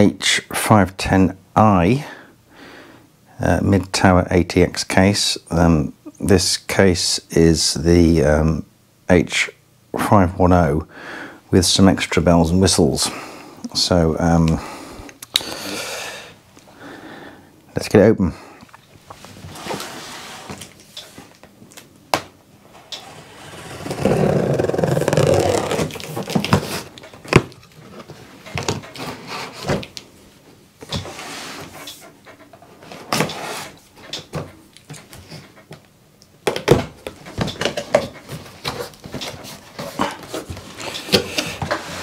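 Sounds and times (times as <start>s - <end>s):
cardboard and tape scraping: 22.7s - 28.2s.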